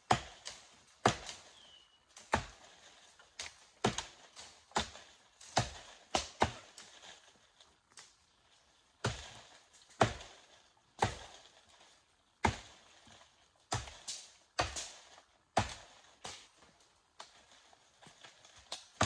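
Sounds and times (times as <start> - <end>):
machete chopping brush: 0.0 - 7.1, 9.0 - 10.4, 11.0 - 11.5, 12.4 - 16.5.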